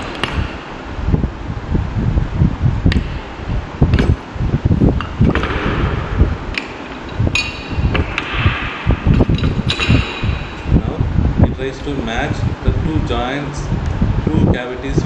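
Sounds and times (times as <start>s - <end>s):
sharp knocks: 0.0s - 1.0s, 2.8s - 10.9s
metallic clinks: 6.5s - 8.2s, 9.1s - 10.8s.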